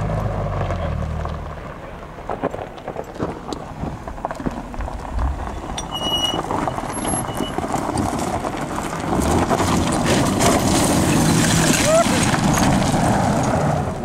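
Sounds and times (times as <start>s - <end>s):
tyres crunching over stones: 1.2s - 13.6s
car engine running: 3.6s - 9.8s.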